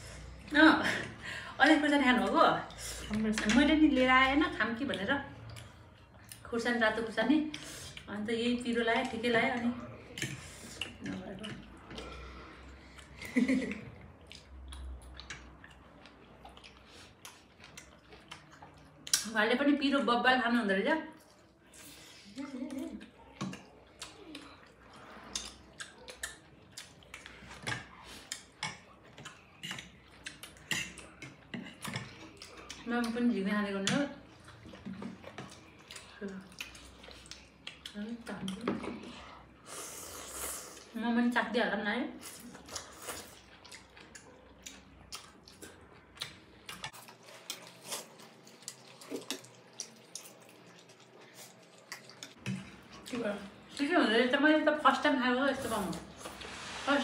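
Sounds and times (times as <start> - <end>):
eating noises: 9.0 - 19.3, 21.1 - 33.3, 34.1 - 41.0, 42.2 - 54.0.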